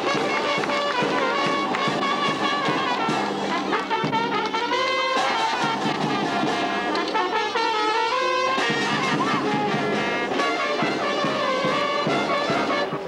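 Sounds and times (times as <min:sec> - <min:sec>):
brass band playing: 0:00.0 - 0:13.0.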